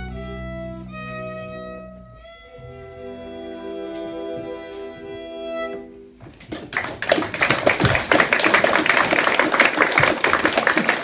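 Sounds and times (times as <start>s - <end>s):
accordion and fiddles holding chord: 0.0s - 6.2s
audience applauding: 6.5s - 11.0s.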